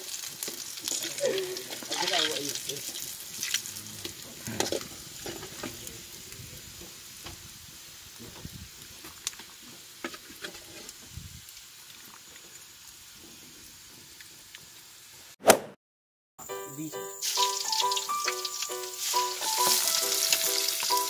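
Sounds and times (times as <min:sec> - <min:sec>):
hot oil sizzling in a wok: 0:00.0 - 0:15.3, 0:16.7 - 0:21.0
metal ladle scraping wok: 0:00.8 - 0:05.7.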